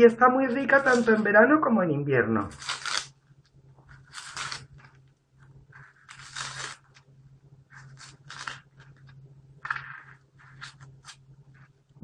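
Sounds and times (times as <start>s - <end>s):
onion skin crackling and tearing: 2.5s - 3.2s, 4.0s - 5.1s, 5.8s - 7.1s, 7.9s - 9.8s.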